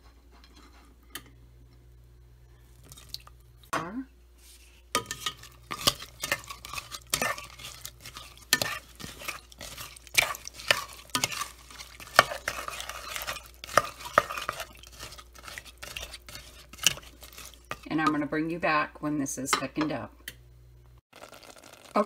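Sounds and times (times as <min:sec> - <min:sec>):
spoon scraping saucepan: 0:05.0 - 0:18.4.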